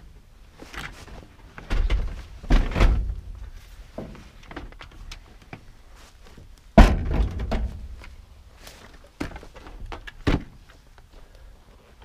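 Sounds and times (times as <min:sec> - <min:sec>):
heavy thump: 0:06.8 - 0:08.0.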